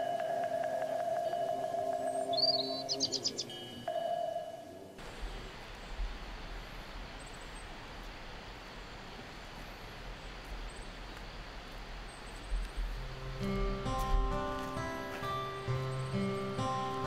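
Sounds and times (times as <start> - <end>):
faint high chirps: 0.0 - 4.1
acoustic guitar music: 13.0 - 17.0.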